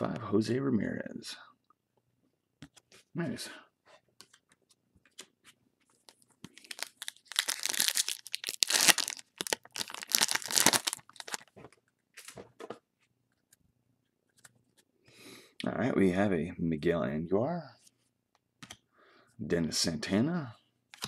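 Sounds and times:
foil wrapper crinkling and tearing: 0:06.5 - 0:11.5.

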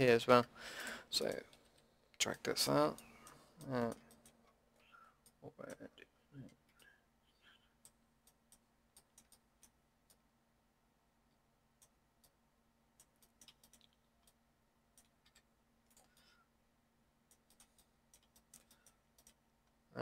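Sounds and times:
mouse and keyboard clicks: 0:07.8 - 0:10.2, 0:13.0 - 0:14.4, 0:17.3 - 0:19.4.

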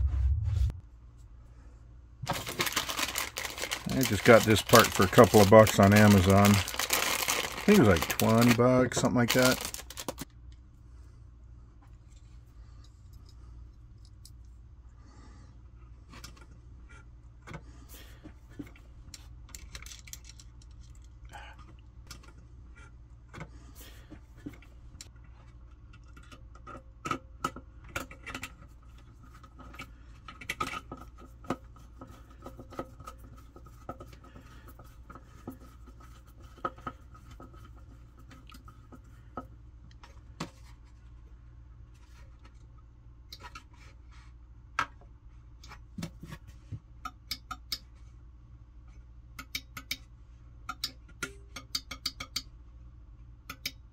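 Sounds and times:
steady low hum: 0:00.0 - 0:53.9.

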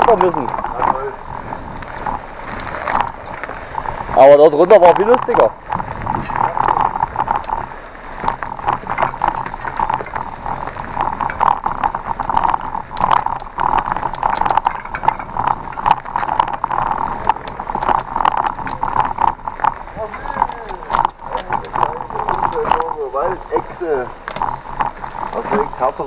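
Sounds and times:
bicycle clicks and rattles: 0:00.0 - 0:26.0
bicycle rolling on trail: 0:00.0 - 0:26.0.

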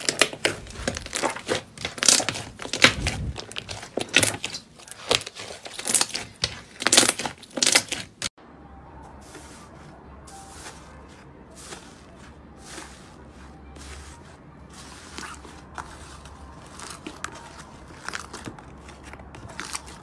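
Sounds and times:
slime crackling and popping: 0:00.0 - 0:08.3
hand rustling in grainy slime: 0:09.2 - 0:20.0.

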